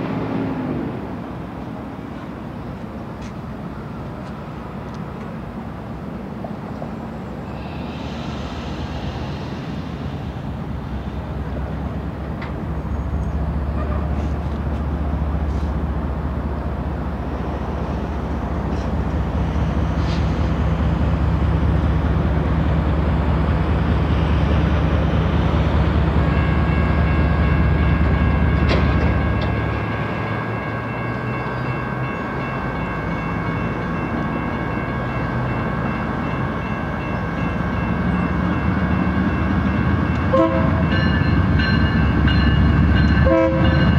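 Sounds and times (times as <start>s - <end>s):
level-crossing warning bell: 25.6s - 43.9s.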